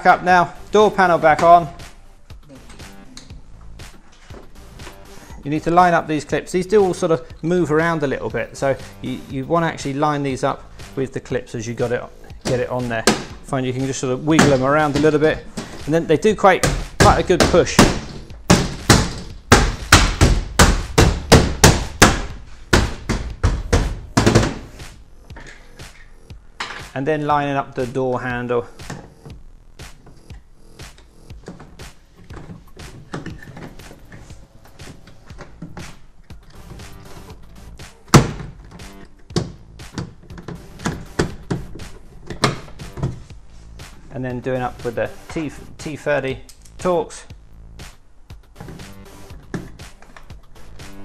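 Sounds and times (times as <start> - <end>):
hand thumping door panel: 12.4 - 13.4, 16.6 - 24.8, 38.1 - 43.3.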